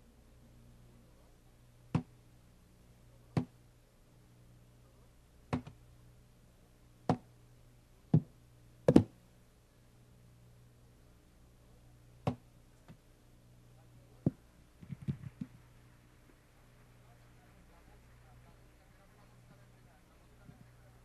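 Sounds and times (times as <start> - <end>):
faint low hum: 0.0 - 21.0
sharp knocks on hard surface: 8.9 - 9.1.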